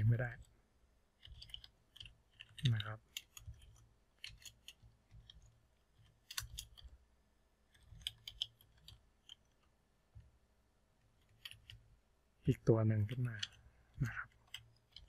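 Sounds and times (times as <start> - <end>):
computer keyboard typing: 1.2 - 6.9, 7.7 - 9.4, 13.4 - 15.0.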